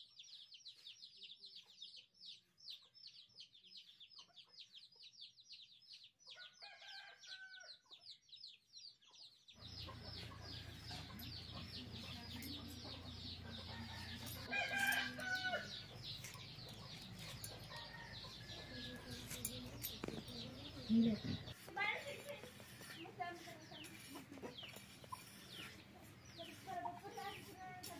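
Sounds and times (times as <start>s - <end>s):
small birds chirping: 0.0s - 27.9s
rooster crowing: 6.4s - 7.7s, 13.6s - 15.7s
chickens clucking: 9.0s - 27.9s.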